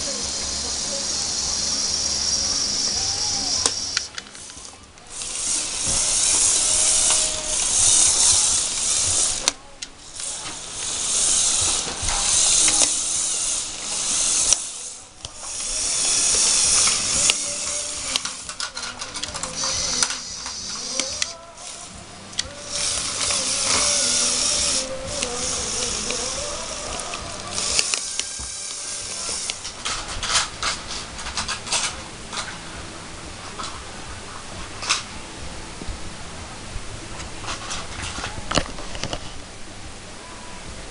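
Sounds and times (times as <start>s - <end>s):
toy motors whirring gears: 0.0s - 32.6s, 37.4s - 39.2s.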